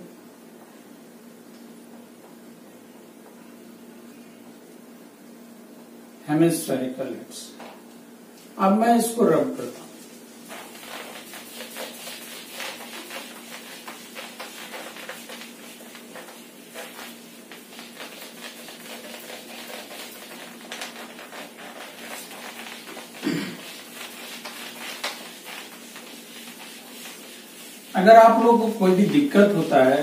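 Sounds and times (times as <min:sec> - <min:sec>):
faint steady hum: 0:00.0 - 0:30.0
eraser scrubbing whiteboard: 0:09.6 - 0:30.0.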